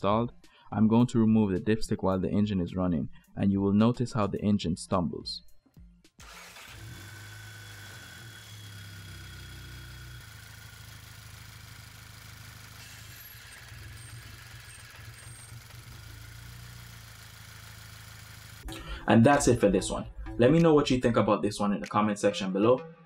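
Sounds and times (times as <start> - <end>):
car engine idling: 6.5 - 19.0.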